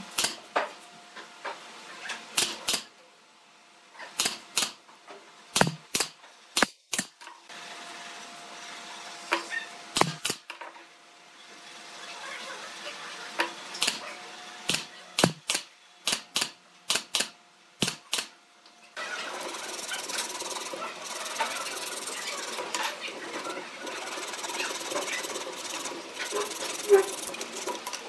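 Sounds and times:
sharp wooden knocks: 5.6 - 5.9
hand saw cutting wood: 19.2 - 28.0.

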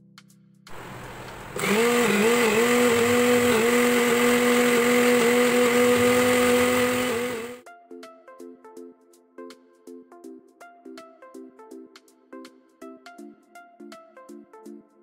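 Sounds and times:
mixer grinder motor hum: 0.7 - 7.6.

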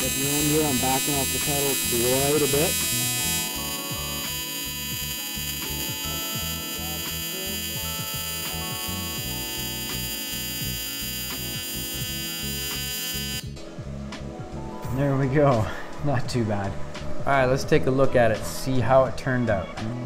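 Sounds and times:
welding arc buzzing: 0.0 - 13.6
background music: 0.0 - 20.0.

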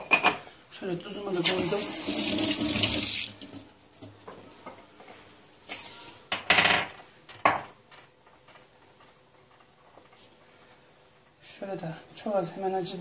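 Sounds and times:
kitchenware clinking on stone: 0.0 - 0.4, 6.3 - 10.0
running tap: 1.4 - 3.6.

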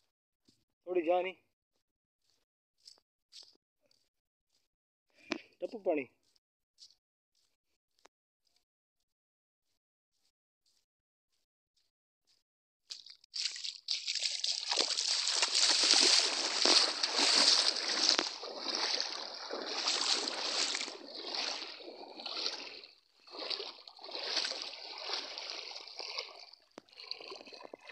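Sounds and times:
feet wading through water: 12.9 - 27.9.

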